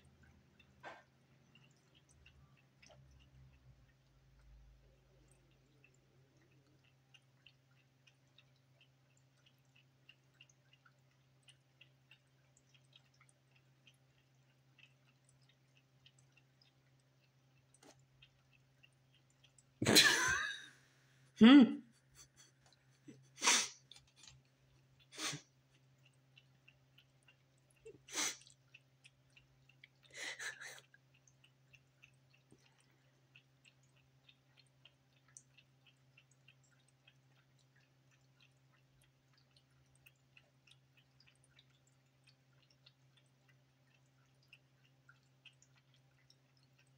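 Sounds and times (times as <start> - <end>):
cat lapping water: 0.0 - 21.3, 21.9 - 46.9
fountain pump hum: 22.8 - 46.9
fountain pump humming: 30.1 - 30.9.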